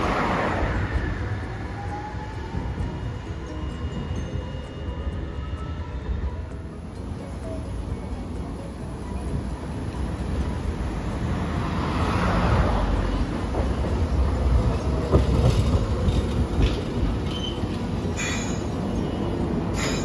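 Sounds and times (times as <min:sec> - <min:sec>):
streetcar rumbling on rails: 0:00.0 - 0:20.0
wheel squeal: 0:14.7 - 0:20.0.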